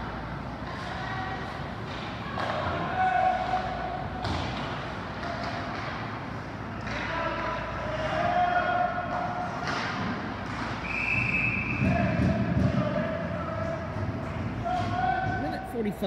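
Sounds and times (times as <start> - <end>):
low arena hum: 0.0 - 16.0
hockey stick and puck knocks: 4.2 - 6.1, 9.5 - 10.8.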